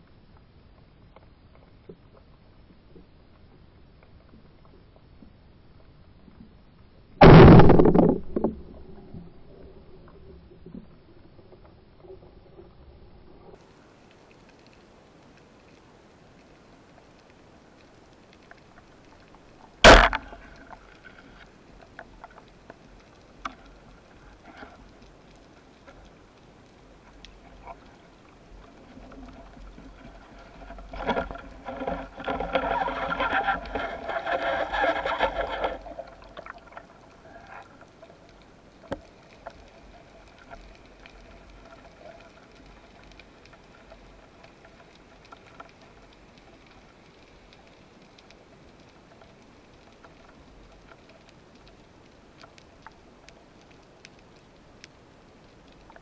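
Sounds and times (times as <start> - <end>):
speargun firing crack: 7.2 - 8.6, 19.8 - 20.4
faint clicks: 13.4 - 56.0.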